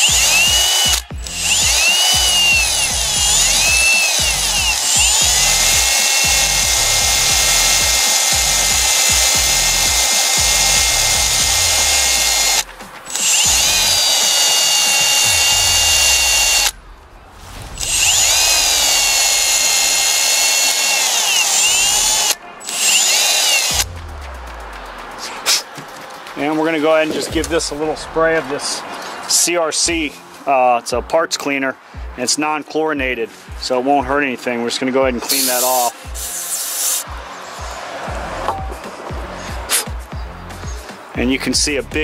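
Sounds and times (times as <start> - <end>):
drill with wire brush whining: 0.0 - 16.8, 17.8 - 23.8.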